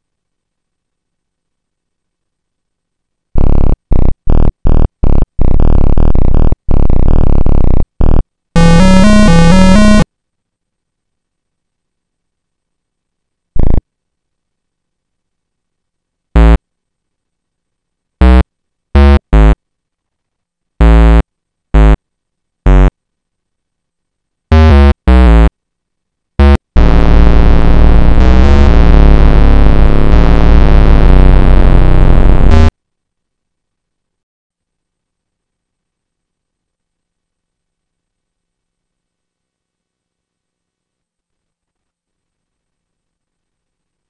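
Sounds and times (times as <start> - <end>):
single square-wave synth notes: 3.4 - 10.1, 13.6 - 13.8, 16.4 - 16.6, 18.2 - 18.4, 19.0 - 19.6, 20.8 - 22.0, 22.7 - 22.9, 24.5 - 25.5, 26.4 - 32.7
square-wave chiptune melody: 5.4 - 10.0, 20.8 - 21.2, 24.5 - 25.5, 26.4 - 32.7.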